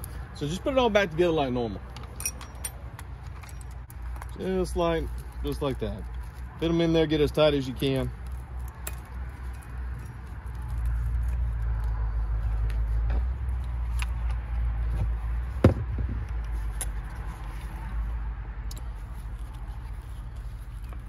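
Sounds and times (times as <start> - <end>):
steady low rumble: 1.7 - 21.0
sharp knock: 15.6 - 16.2.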